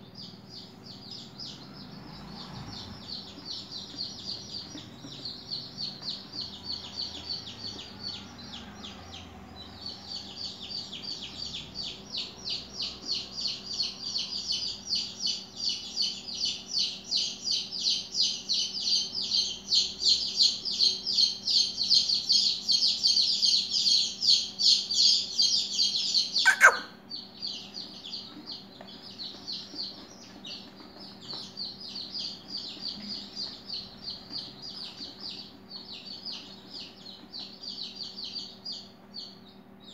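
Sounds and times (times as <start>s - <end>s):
high-pitched chirping: 9.8s - 39.9s.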